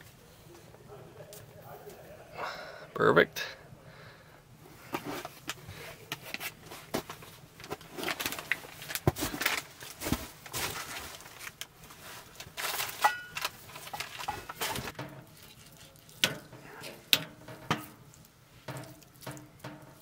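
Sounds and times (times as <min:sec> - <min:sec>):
rustles and light knocks: 0:04.8 - 0:20.0.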